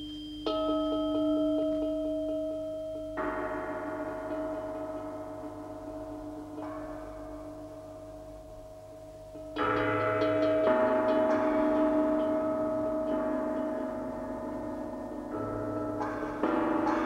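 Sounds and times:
gong strokes ringing: 9.3 - 17.0.

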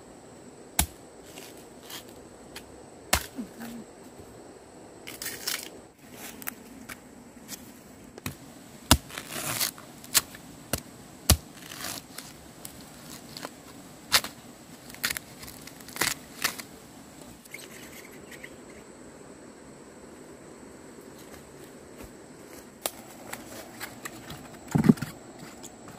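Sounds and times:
dead leaves and twigs rustling: 5.1 - 18.0
metal tool digging into soil: 8.9 - 13.5.

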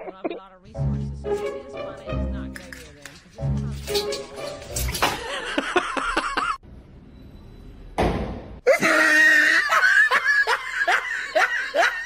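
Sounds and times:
person laughing hard: 5.2 - 6.6, 8.7 - 12.0.

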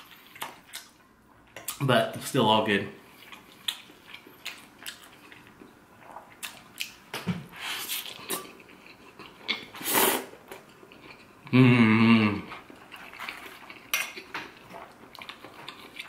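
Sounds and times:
chewing and smacking: 0.0 - 1.8, 3.1 - 7.0, 7.9 - 9.7, 10.5 - 11.4, 12.5 - 16.0
slurping noodles: 9.8 - 10.3.

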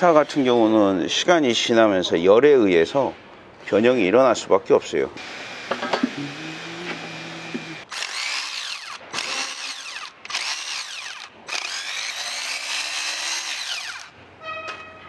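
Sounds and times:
cordless power driver whining: 5.2 - 14.1.

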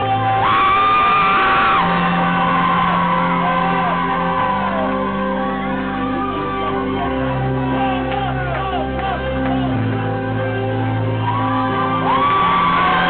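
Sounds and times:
high scream: 0.0 - 6.6
audience shouting and screaming: 0.0 - 10.2, 10.9 - 13.0.

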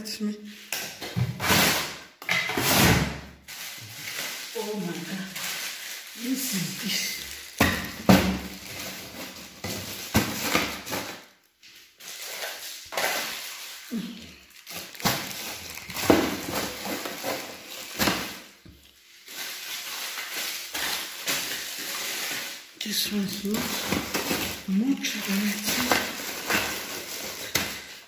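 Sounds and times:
plastic bags rustling: 0.4 - 28.0
bags knocking plastic drawer: 15.1 - 17.4.

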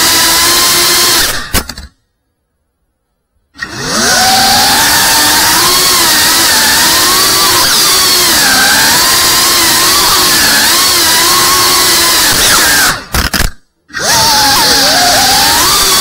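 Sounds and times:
drone motors whining: 3.6 - 16.0.

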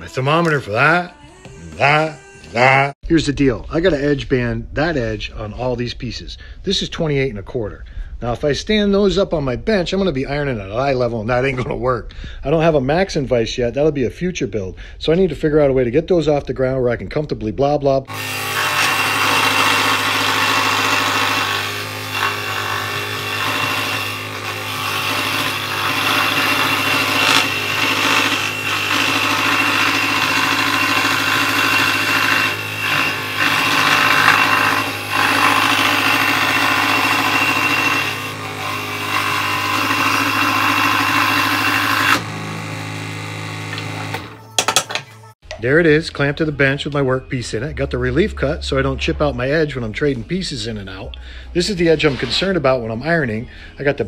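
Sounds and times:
saw blade rasping in wood: 18.1 - 44.3
scroll saw motor hum: 18.1 - 44.4.

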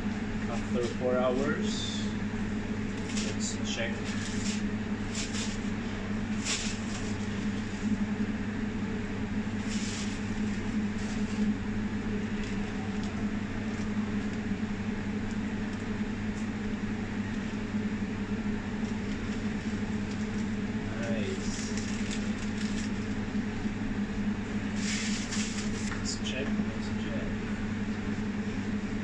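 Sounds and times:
kitchen machinery hum: 0.0 - 29.0
baking paper rustling: 2.9 - 8.0, 9.5 - 11.6, 18.8 - 20.6, 21.2 - 23.2, 24.6 - 26.3
aluminium foil crinkling: 3.0 - 5.7, 6.3 - 7.9, 9.6 - 11.5, 12.3 - 14.4, 18.8 - 20.6, 21.3 - 23.2, 24.8 - 26.0.

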